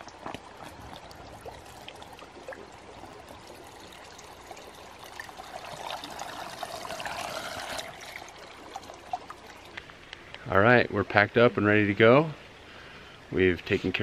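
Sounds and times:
water pouring into bladder: 0.0s - 9.9s.

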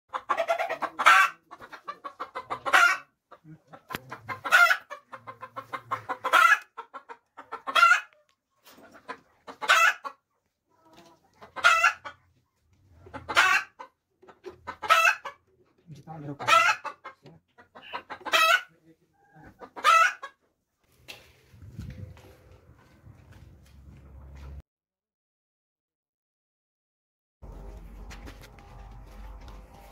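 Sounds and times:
hen cackling: 0.1s - 8.2s, 9.0s - 10.2s, 10.8s - 12.2s, 13.0s - 15.4s, 16.3s - 20.4s.

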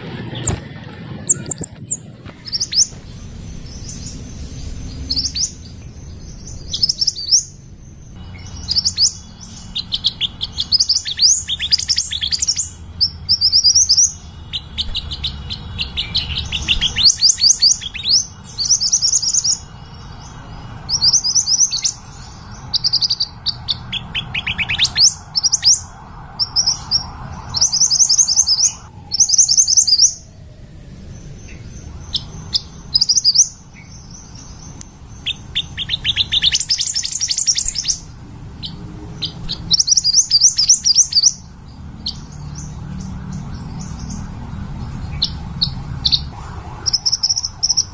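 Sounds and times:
low hum: 0.0s - 11.5s
bird chirping rapidly: 0.2s - 30.3s, 31.0s - 47.9s.

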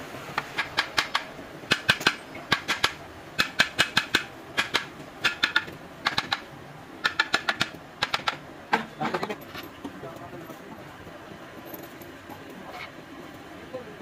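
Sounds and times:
hammer tapping on metal: 0.4s - 6.4s, 7.0s - 8.9s.

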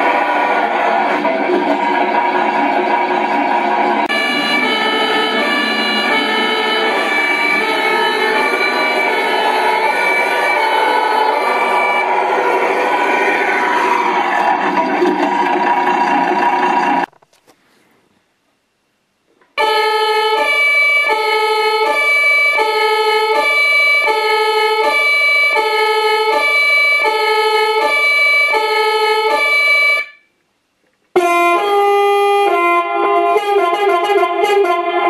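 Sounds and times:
siren tone sequence: 0.0s - 17.1s, 19.6s - 30.2s
two-tone emergency siren: 0.0s - 17.1s, 19.6s - 30.3s, 31.2s - 35.0s.

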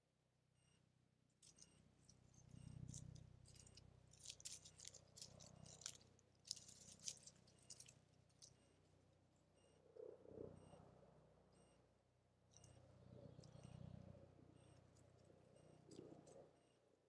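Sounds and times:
low steady hum: 0.4s - 17.0s
rustling in dry leaves: 2.9s - 8.4s.

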